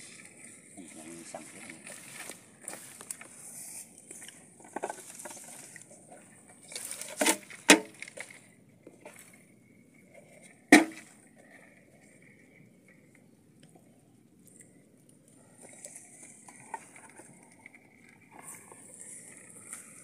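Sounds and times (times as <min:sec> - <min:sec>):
rustling in grass and soil: 0:00.0 - 0:20.0
sharp knocks on plastic bucket: 0:10.8 - 0:11.0.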